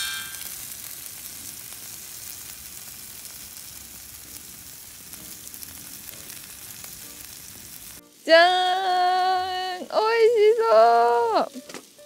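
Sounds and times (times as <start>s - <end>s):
short ringing tone: 0.0s - 0.5s
food sizzling in a frying pan: 0.0s - 12.0s.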